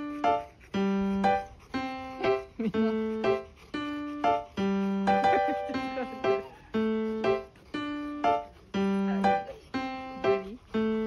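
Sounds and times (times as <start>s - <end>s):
light keyboard tune: 0.0s - 11.0s.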